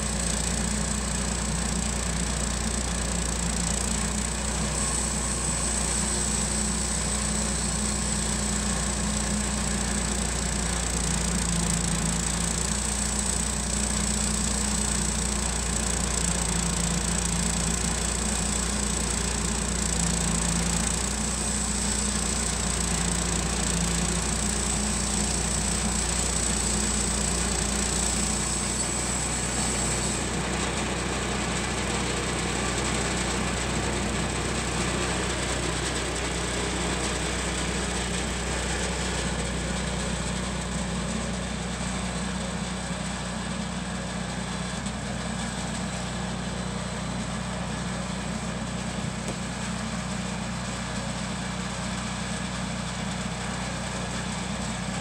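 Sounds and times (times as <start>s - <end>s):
sawmill engine running: 0.0s - 55.0s.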